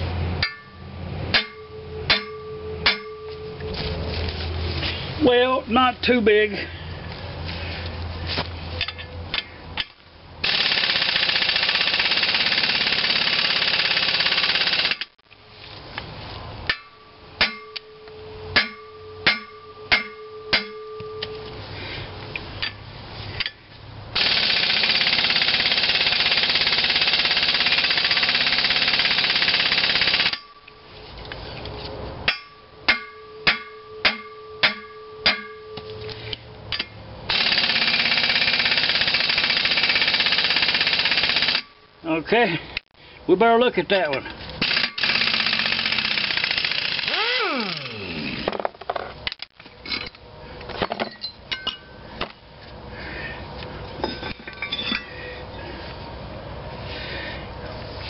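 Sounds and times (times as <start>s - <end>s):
air impact wrench: 10.4s - 15.2s, 24.2s - 30.6s, 37.3s - 41.8s, 44.6s - 48.6s
hammer blows on metal: 16.7s - 21.5s.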